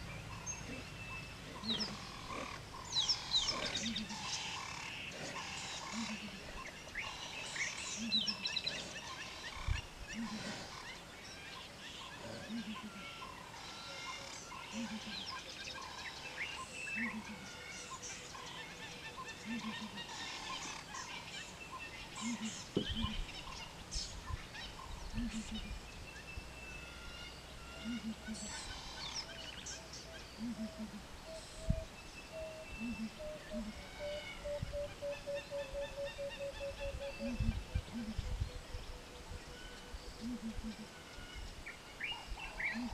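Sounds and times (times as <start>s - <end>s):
birds calling and chirping: 0.0s - 42.9s
low two-part bird call: 30.4s - 38.2s.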